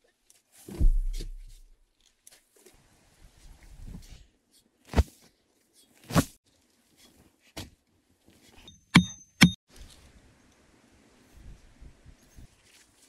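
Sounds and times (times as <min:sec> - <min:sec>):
sharp metallic strikes: 0:08.7 - 0:09.6.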